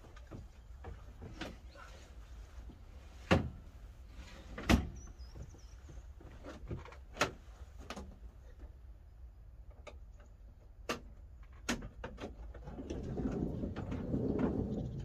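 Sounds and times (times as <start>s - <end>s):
clicks and knocks from seats: 0.0s - 3.6s, 4.4s - 8.8s, 9.7s - 15.0s.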